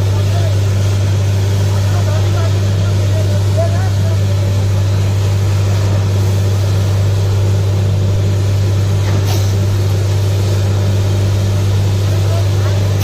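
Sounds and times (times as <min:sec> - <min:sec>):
drilling rig deep drone: 0:00.0 - 0:13.0.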